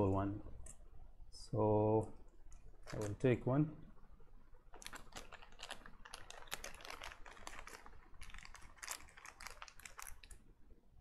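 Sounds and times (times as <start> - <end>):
plastic packaging clicks and rattles: 2.5 - 3.4, 4.6 - 10.4.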